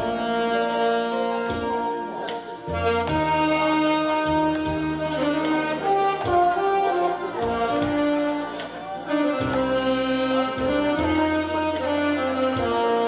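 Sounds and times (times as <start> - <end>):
alto saxophones playing melody: 0.0 - 13.0
bass line: 0.0 - 13.0
recorded backing track: 0.0 - 13.0.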